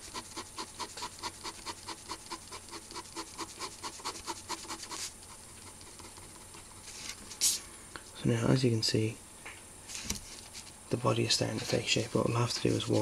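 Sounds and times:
pen scratching on paper: 0.0s - 7.0s, 12.5s - 13.0s.

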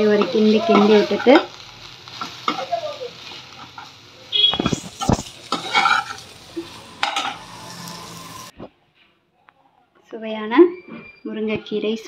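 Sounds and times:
spatula scraping frying pan: 0.0s - 8.5s
spatula clattering against pan: 4.6s - 6.2s.

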